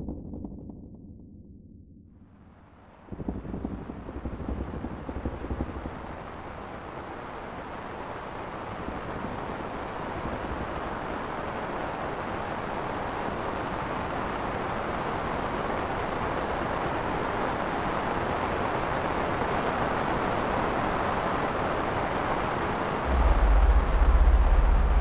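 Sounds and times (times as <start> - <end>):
deep bass: 0.0 - 2.2, 23.0 - 25.0
surf-like ambient noise: 3.0 - 25.0.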